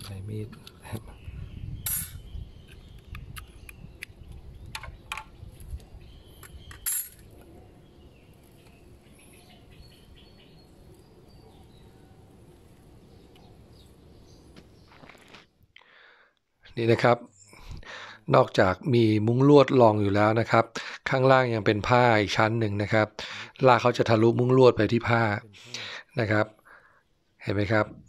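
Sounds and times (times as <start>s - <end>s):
low steady background: 0.0s - 28.0s
sharp clicks and knocks: 2.7s - 5.3s.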